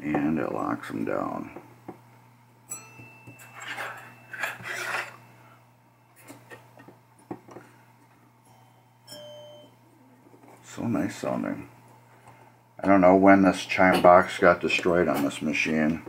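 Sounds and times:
chime bar ringing: 0:02.7 - 0:04.6, 0:08.4 - 0:09.9
metal parts scraping: 0:03.4 - 0:05.3.

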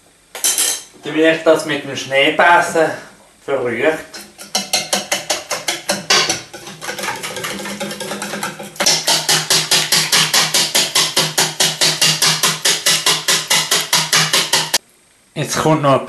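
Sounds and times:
whisk beating batter in metal bowl: 0:04.1 - 0:14.8.

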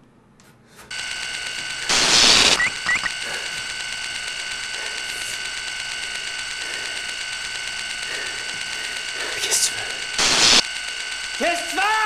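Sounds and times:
steady electronic buzz: 0:00.9 - 0:12.0
video static noise burst: 0:01.0 - 0:11.2
rising electronic chirps: 0:01.9 - 0:03.2.

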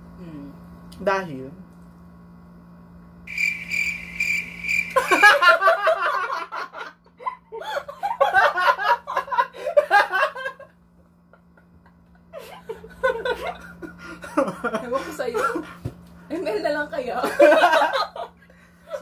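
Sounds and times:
high pulsing squeak: 0:03.3 - 0:05.0
man and woman laughing: 0:04.9 - 0:15.8, 0:17.2 - 0:19.0.

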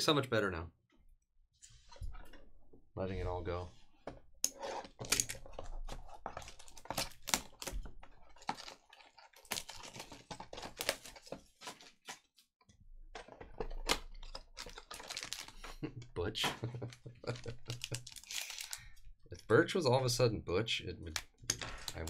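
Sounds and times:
plastic wrap crinkling: 0:05.3 - 0:12.4, 0:13.8 - 0:15.9, 0:16.8 - 0:18.9.

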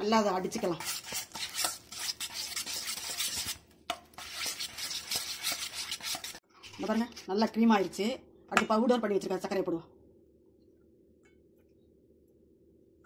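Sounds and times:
whisk scraping metal bowl: 0:00.5 - 0:07.2.

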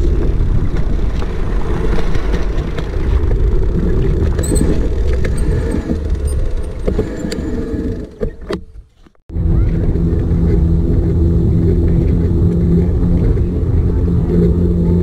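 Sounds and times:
bicycle tyre noise: 0:00.0 - 0:08.2
wind rumbling on microphone: 0:00.0 - 0:15.0.

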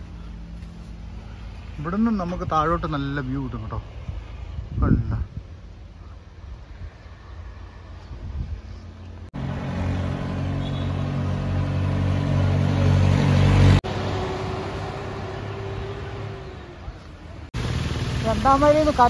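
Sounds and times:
vehicle engine running: 0:00.0 - 0:02.4, 0:09.2 - 0:19.0.

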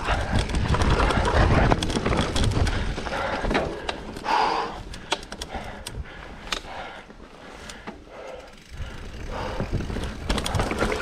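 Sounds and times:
wind rumble on microphone: 0:00.0 - 0:03.0, 0:08.8 - 0:11.0
bike clicks and rattles: 0:00.0 - 0:11.0
bike tyre noise: 0:00.0 - 0:11.0.

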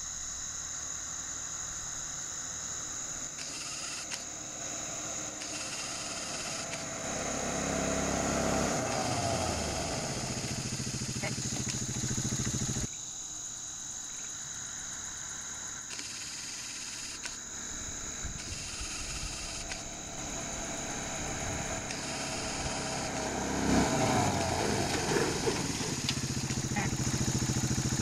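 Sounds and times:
insects trilling: 0:00.0 - 0:28.0
quad engine: 0:03.2 - 0:12.9, 0:15.9 - 0:28.0.

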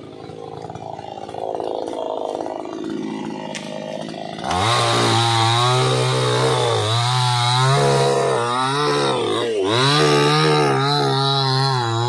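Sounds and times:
chainsaw cutting wood: 0:00.0 - 0:12.0.

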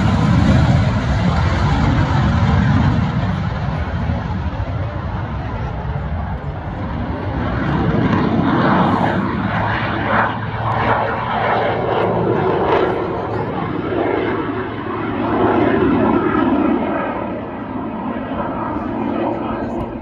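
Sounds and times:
jet biplane engines rumbling: 0:00.0 - 0:20.0.

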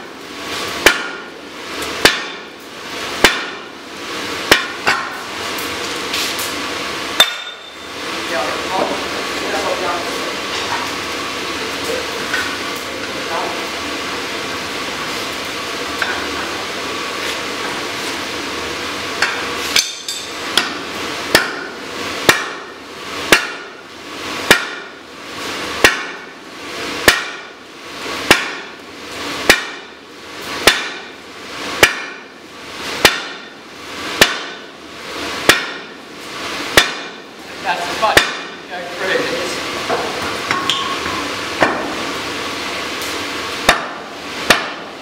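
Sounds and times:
sledgehammer striking metal: 0:00.8 - 0:01.3, 0:02.0 - 0:02.5, 0:03.2 - 0:03.7, 0:04.5 - 0:05.2, 0:07.2 - 0:07.8, 0:19.2 - 0:22.7, 0:23.3 - 0:23.8, 0:24.5 - 0:24.9, 0:25.8 - 0:26.3, 0:27.0 - 0:27.5, 0:28.3 - 0:28.7, 0:29.4 - 0:30.0, 0:30.6 - 0:31.1, 0:31.8 - 0:32.3, 0:33.0 - 0:33.5, 0:34.2 - 0:34.6, 0:35.4 - 0:36.0, 0:36.7 - 0:37.2, 0:43.7 - 0:44.9.

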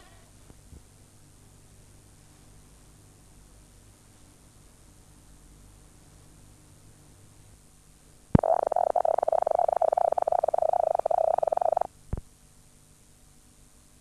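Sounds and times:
faint tape hiss: 0:00.0 - 0:12.4.

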